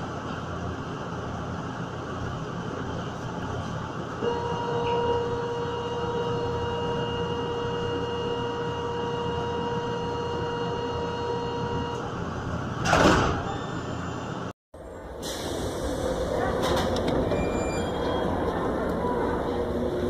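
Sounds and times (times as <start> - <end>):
train hum: 0.0 - 13.6, 14.2 - 20.0
train doors sliding shut: 11.8 - 14.0, 15.0 - 20.0
electronic warning beep: 13.5 - 14.5.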